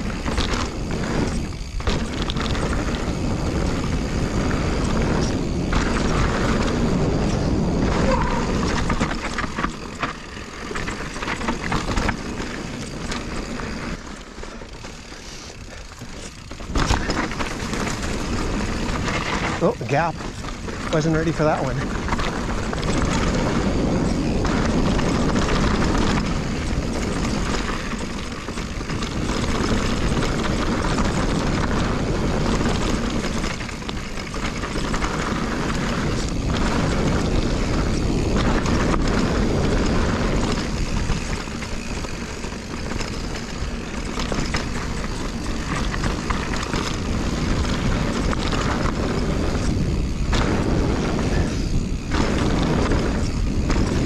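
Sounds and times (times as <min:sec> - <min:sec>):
wind rushing on microphone: 0:00.0 - 0:14.0, 0:15.7 - 0:54.0
bike rattling over ground: 0:00.0 - 0:54.0
bike tyre noise: 0:00.0 - 0:54.0.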